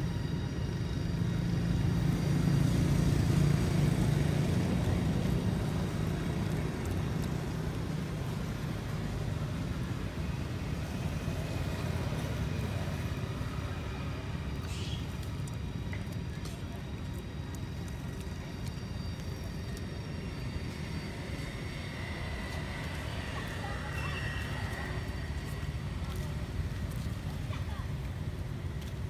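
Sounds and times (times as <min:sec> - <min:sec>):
road traffic rumble: 0:00.0 - 0:29.0.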